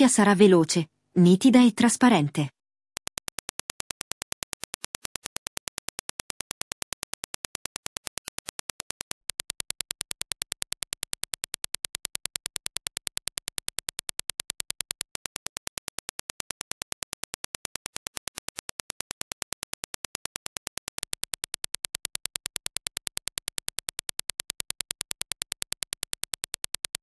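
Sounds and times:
rapid train of sharp clicks: 3.0 - 27.0.

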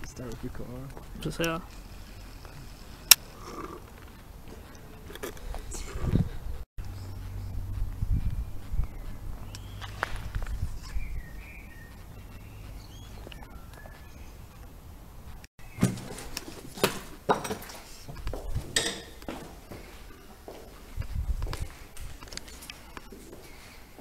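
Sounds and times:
small birds chirping: 0.0 - 16.4, 19.2 - 24.0
sharp clinks and knocks: 18.8 - 19.4.

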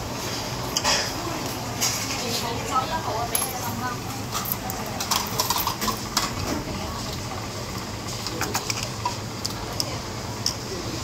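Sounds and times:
metal utensils clinking: 3.2 - 6.2.

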